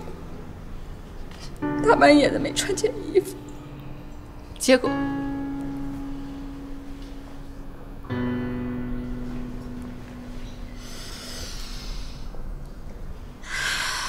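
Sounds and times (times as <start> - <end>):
soft film score: 0.0 - 14.0.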